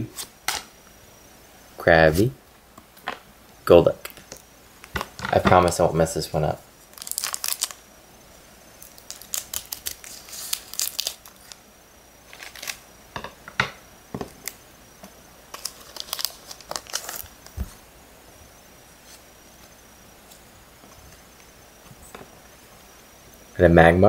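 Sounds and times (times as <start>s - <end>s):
foil wrapper crinkling: 6.8s - 7.9s, 8.8s - 11.6s, 12.2s - 12.8s, 15.5s - 17.7s.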